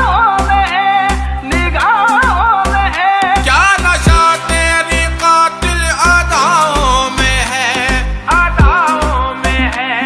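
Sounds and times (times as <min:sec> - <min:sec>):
heavy bass beat: 0:03.3 - 0:09.6
ornamented melody: 0:03.7 - 0:09.1.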